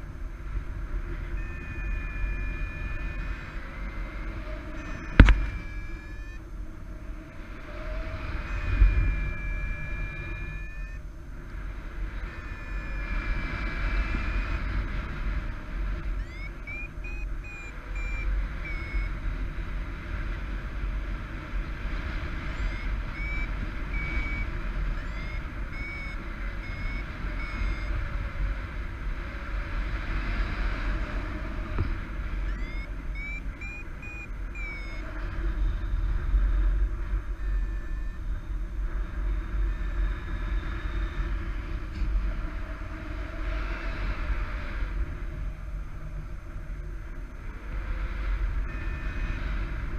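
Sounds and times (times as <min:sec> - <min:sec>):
wind rumble on microphone: 0:00.0 - 0:49.9
variometer high beeps: 0:00.8 - 0:06.6, 0:07.2 - 0:11.2, 0:11.8 - 0:19.3, 0:22.3 - 0:28.3, 0:31.6 - 0:41.5, 0:48.6 - 0:49.9.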